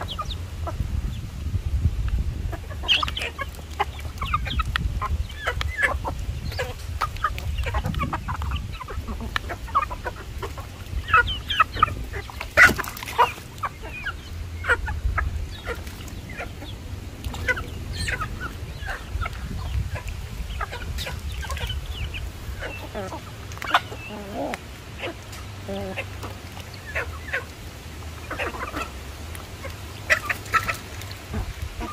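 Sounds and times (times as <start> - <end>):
chickens clucking: 0.0 - 1.3, 2.0 - 31.9
steady low rumble: 0.0 - 12.6, 13.5 - 30.1.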